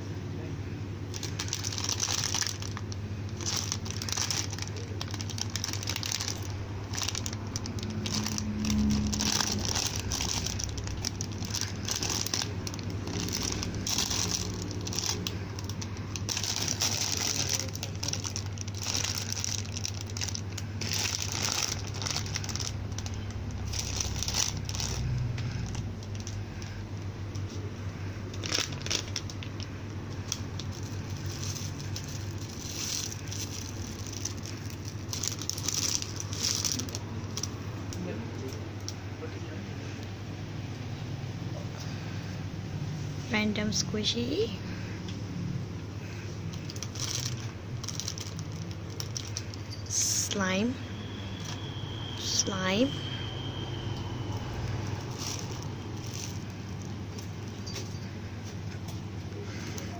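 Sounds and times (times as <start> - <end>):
steady low hum: 0.0 - 59.9
plastic packaging crinkling: 1.1 - 27.7, 28.3 - 38.0, 46.0 - 59.9.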